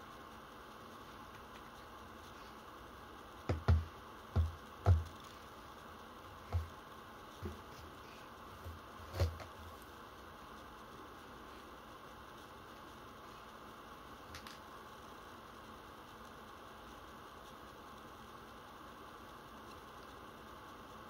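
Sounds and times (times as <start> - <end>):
objects knocking on wooden desk: 3.5 - 5.1.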